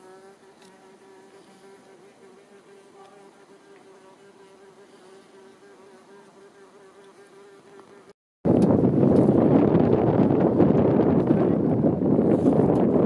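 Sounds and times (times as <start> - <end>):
buzzing of flying insects: 0.0 - 8.2.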